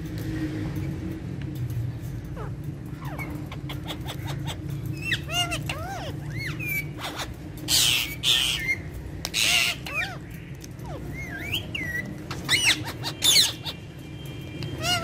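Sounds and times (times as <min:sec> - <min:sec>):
parakeet harsh screeches: 0:03.0 - 0:10.2, 0:10.8 - 0:13.8, 0:14.8 - 0:15.0
parakeet whistles: 0:10.8 - 0:13.8.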